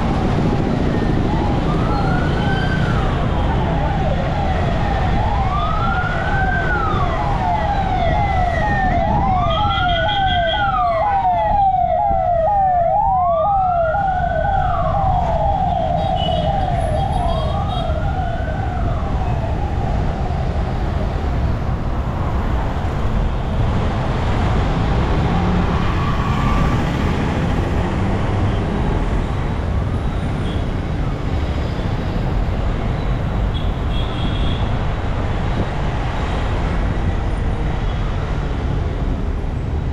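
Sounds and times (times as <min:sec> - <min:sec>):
siren yelp and wail: 0:00.0 - 0:23.1, 0:24.1 - 0:27.9
traffic and road noise: 0:00.0 - 0:39.9.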